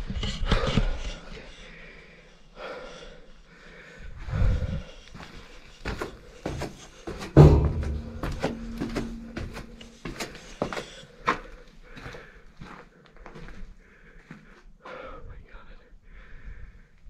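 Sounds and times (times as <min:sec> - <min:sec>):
footsteps on concrete stairs: 0:05.2 - 0:13.6.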